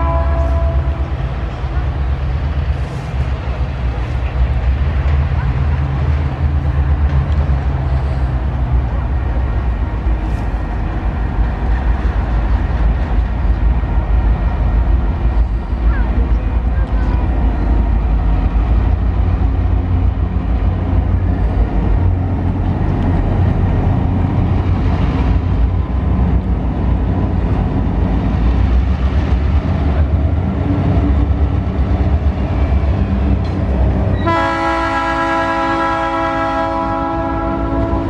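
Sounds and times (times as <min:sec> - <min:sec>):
locomotive horn chord: 0:00.0 - 0:01.2, 0:34.2 - 0:38.0
diesel locomotive engines rumbling: 0:00.0 - 0:38.0.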